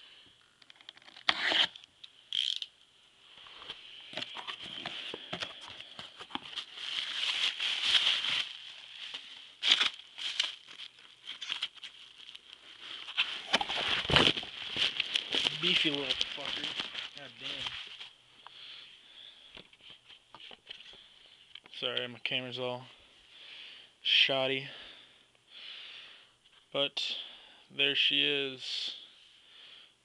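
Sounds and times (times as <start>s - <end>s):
packing tape ripping: 0.7s - 2.7s, 6.3s - 17.7s
bubble wrap and cardboard crinkling: 3.4s - 18.2s.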